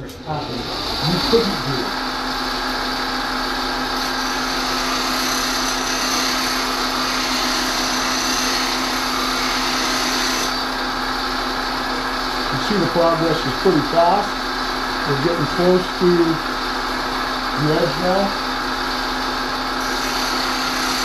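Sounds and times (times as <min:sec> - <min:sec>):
bench grinder motor hum: 0:00.1 - 0:12.5, 0:16.1 - 0:21.0
steel grinding on stone wheel: 0:04.0 - 0:10.5, 0:19.8 - 0:21.0.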